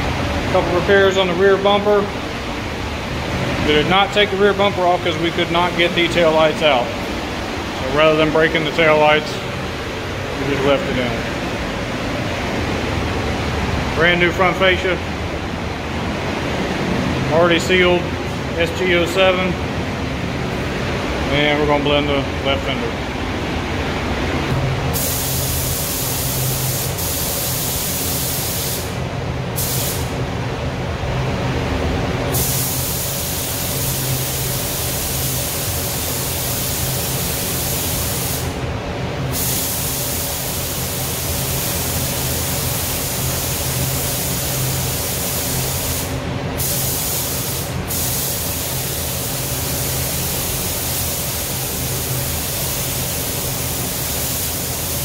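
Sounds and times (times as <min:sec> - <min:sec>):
ventilation low hum: 0:00.0 - 0:55.0
paint spray gun hissing: 0:24.9 - 0:29.0, 0:29.6 - 0:30.1, 0:32.3 - 0:38.6, 0:39.3 - 0:55.0
loud hiss of compressed air: 0:24.9 - 0:30.2, 0:32.3 - 0:38.6, 0:39.3 - 0:55.0.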